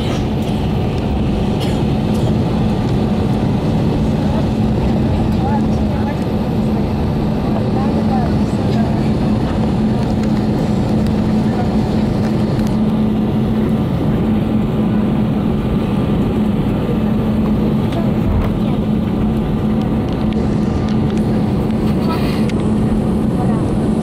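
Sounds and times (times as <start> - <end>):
aircraft cabin engine rumble: 0.0 - 24.0.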